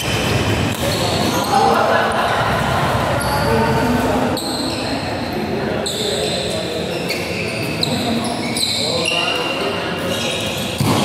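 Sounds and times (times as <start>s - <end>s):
indistinct voices in a hall: 0.0s - 11.0s
shoes squeaking on court mat: 5.8s - 11.0s.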